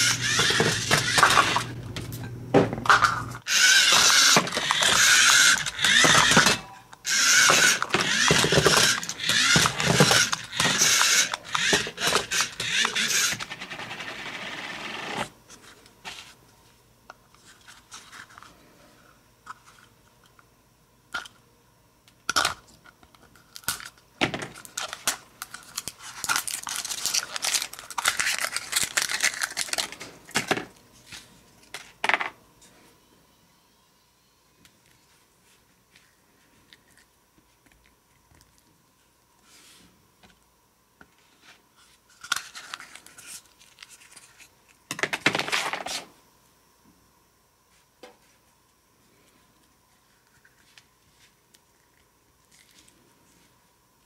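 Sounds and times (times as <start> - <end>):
toy car motor whirring: 0.0 - 1.8, 3.4 - 15.3.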